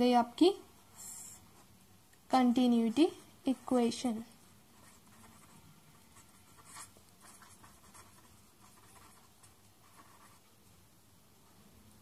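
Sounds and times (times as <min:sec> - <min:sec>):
pen scratching on paper: 0:04.8 - 0:10.5.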